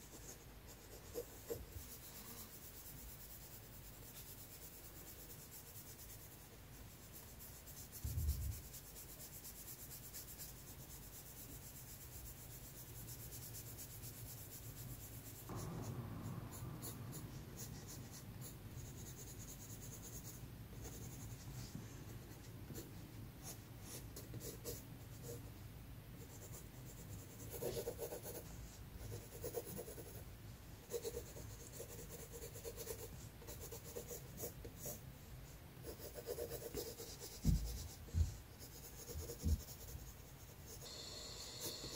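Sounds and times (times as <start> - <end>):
scratchy pencil strokes: 0.0 - 25.5, 26.2 - 30.2, 30.8 - 35.0, 35.8 - 41.9
pencil rubbing and shading: 0.0 - 25.6, 26.2 - 41.9
low thump: 15.5 - 18.4.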